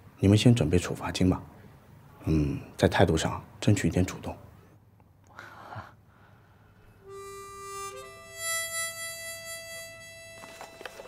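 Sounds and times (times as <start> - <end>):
harmonica long held notes: 7.0 - 11.0.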